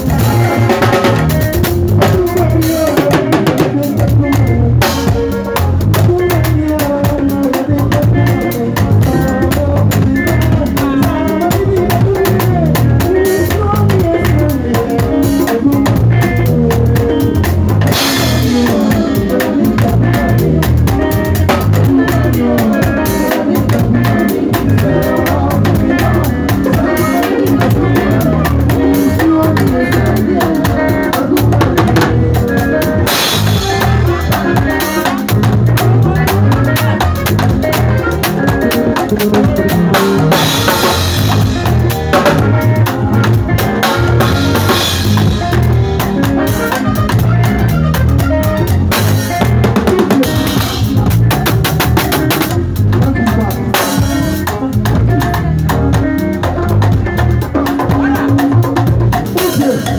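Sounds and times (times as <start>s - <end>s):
bass line: 0.0s - 59.9s
drum kit played hard: 0.0s - 59.9s
keyboard: 0.0s - 59.9s.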